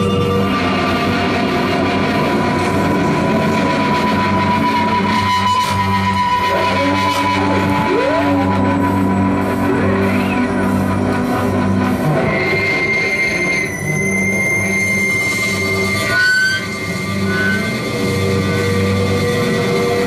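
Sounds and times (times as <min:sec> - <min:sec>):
electric bass guitar: 0:00.0 - 0:12.6
swooping pitch sweep: 0:00.0 - 0:14.2
low droning synthesizer tones: 0:00.0 - 0:20.0
steady high whine: 0:00.0 - 0:20.0.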